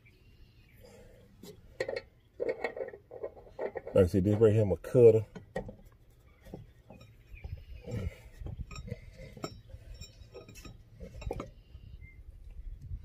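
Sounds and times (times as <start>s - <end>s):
metal tools clinking: 6.8s - 11.5s.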